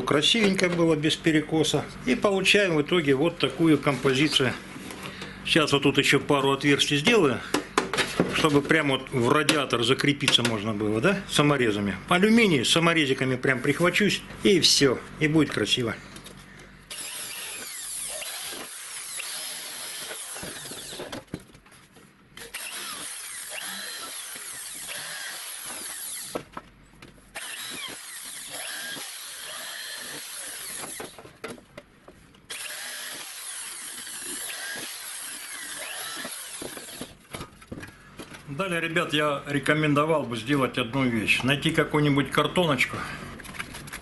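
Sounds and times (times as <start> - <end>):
electric drill boring sheet metal: 16.9 - 21.2, 22.4 - 26.4, 27.4 - 31.2, 32.5 - 37.2.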